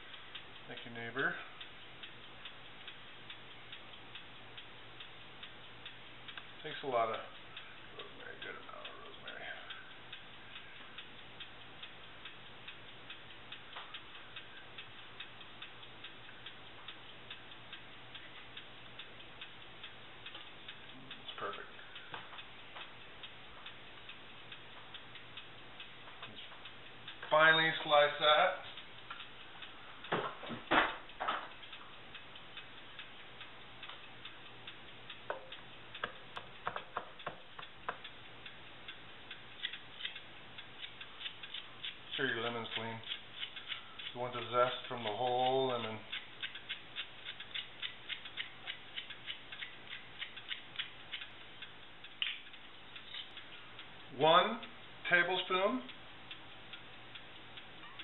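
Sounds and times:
mechanical ticking: 0.0 - 58.0.

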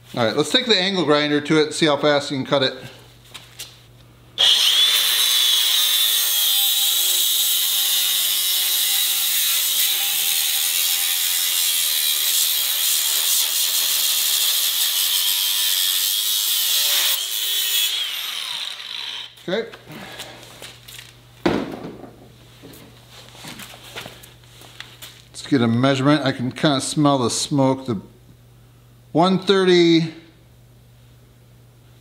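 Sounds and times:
angle grinder cutting steel: 4.4 - 19.4.

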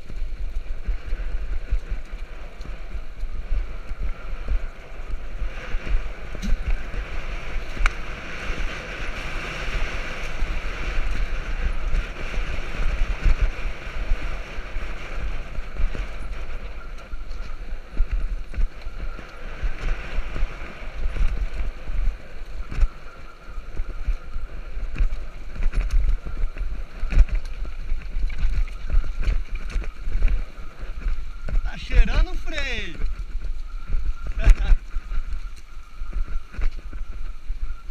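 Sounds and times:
tyres on loose dirt: 0.0 - 37.9
wind buffeting microphone: 0.0 - 37.9.

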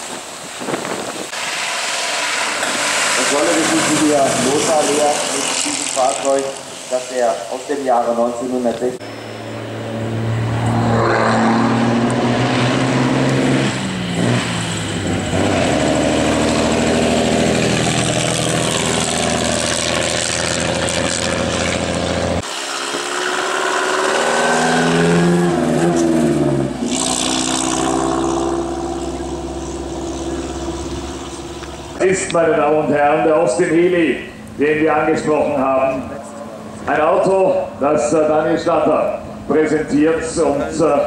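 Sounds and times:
racing cars driving past: 1.3 - 32.4.

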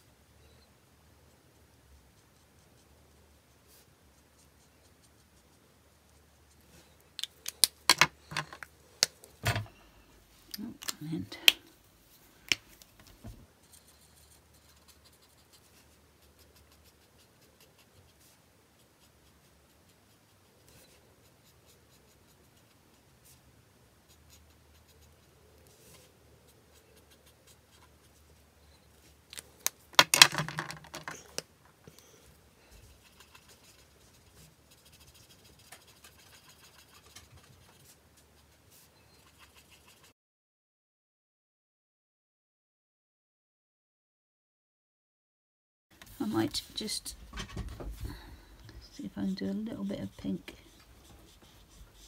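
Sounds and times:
markers clicking and rattling: 7.2 - 9.1, 29.3 - 31.4
marker scratching on card: 13.6 - 23.4, 24.1 - 28.2, 32.9 - 40.1, 49.2 - 52.0.

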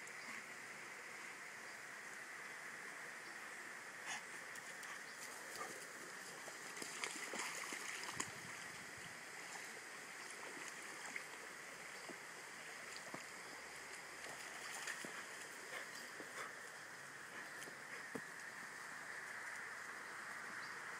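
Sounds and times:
stream running over stones: 0.0 - 20.9
dog paws splashing in water: 4.6 - 8.6, 13.9 - 16.5.

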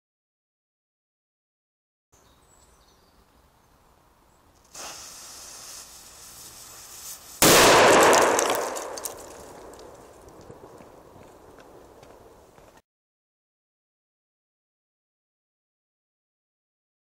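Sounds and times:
burning fuse hissing: 4.6 - 7.6
loud explosion with echo: 7.4 - 9.9.

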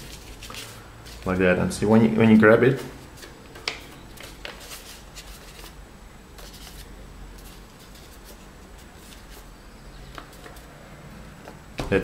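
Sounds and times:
paper rustling and crackling: 0.0 - 1.3, 3.2 - 5.8, 6.4 - 9.5.

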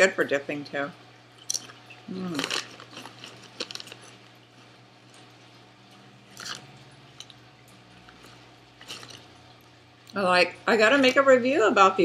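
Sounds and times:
potato chips being chewed: 1.4 - 9.8.

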